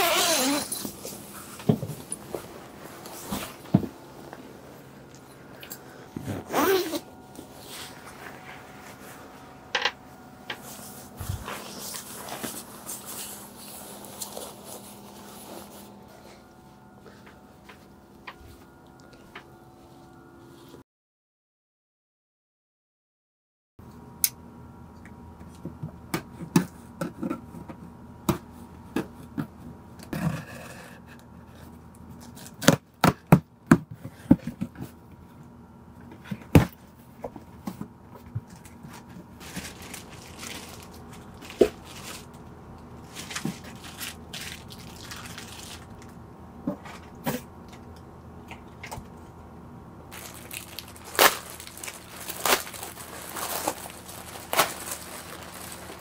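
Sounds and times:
plastic wrapping rustling: 10.6 - 16.0, 38.6 - 46.2, 50.1 - 56.0.

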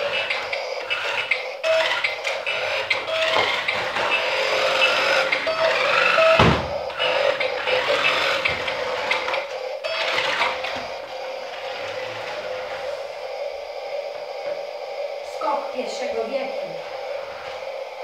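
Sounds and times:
toy car motor whirring: 0.0 - 10.9.

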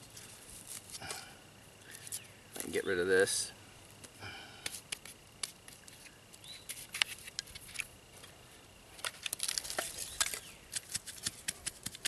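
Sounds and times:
faint high whine: 0.0 - 12.0
dry wood crackling: 9.0 - 12.0.

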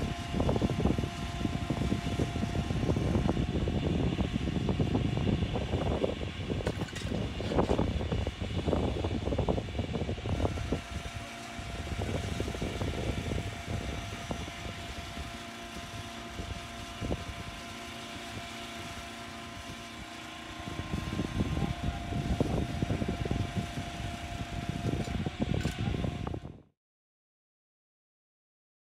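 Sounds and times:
machinery engine running: 0.0 - 26.6
thin steady whine: 0.0 - 26.7
heavy low rumbling: 20.6 - 26.6.

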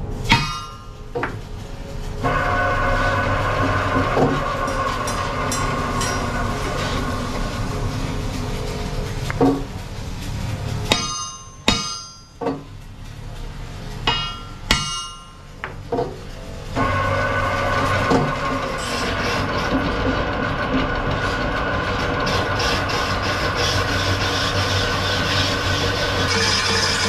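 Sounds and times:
lathe running with low hum: 0.0 - 27.0
hammer blows ringing on steel: 0.3 - 1.0, 10.9 - 12.6, 14.1 - 15.5.

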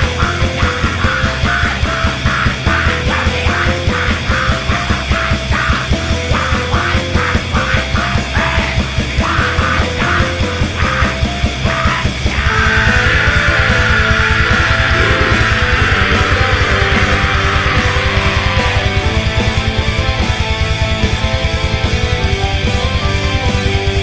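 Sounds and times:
distorted electric guitars: 0.0 - 24.0
pounding drums: 10.7 - 21.2.

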